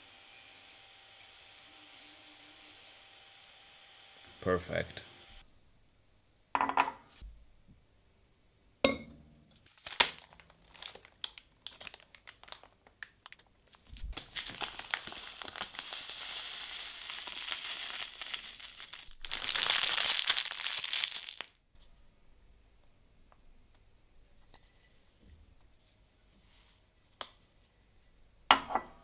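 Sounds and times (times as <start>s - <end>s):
glass mug set down: 6.6s - 7.0s, 8.8s - 9.2s, 28.5s - 29.0s
packet crumpled in a hand: 9.6s - 21.6s
packet rustling: 9.6s - 21.6s
dry leaves pouring into glass: 14.2s - 21.5s.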